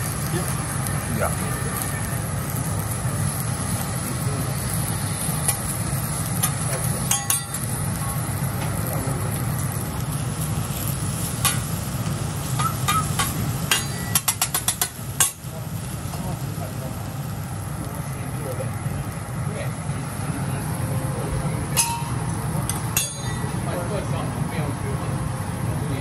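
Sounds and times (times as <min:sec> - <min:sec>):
food sizzling on a griddle: 0:00.0 - 0:26.0
steady low hum: 0:00.0 - 0:26.0
spatula scraping hot plate: 0:12.4 - 0:15.4.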